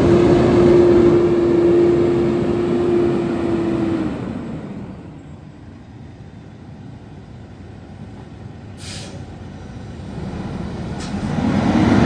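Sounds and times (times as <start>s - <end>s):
diesel truck engine running: 0.0s - 12.0s
air brakes hissing: 8.7s - 9.4s.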